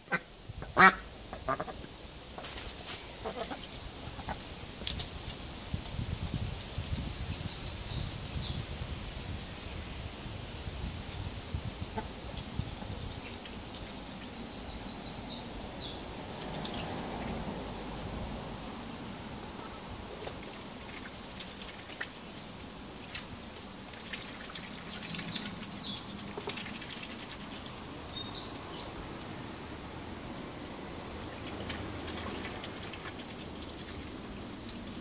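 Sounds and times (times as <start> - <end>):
background hiss: 0.0 - 26.3
songbird singing: 6.3 - 9.9, 11.9 - 20.2, 21.9 - 32.7.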